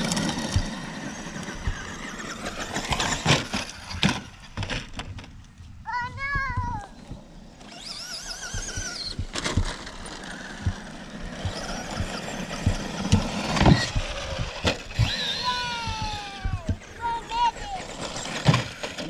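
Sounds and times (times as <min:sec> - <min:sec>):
tyres churning gravel: 0:00.0 - 0:04.0
electric motors whining: 0:00.0 - 0:05.0, 0:06.8 - 0:19.0
chassis thumping ground: 0:08.4 - 0:16.9.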